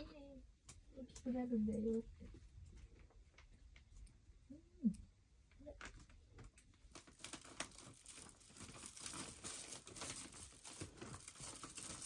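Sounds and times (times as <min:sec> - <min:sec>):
faint rustling and crinkling: 0:00.0 - 0:12.0.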